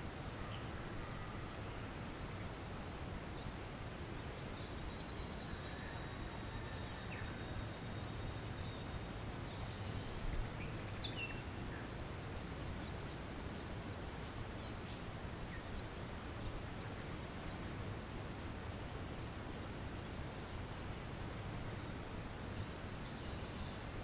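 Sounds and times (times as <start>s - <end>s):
faint thin high tone: 0.3s - 1.8s.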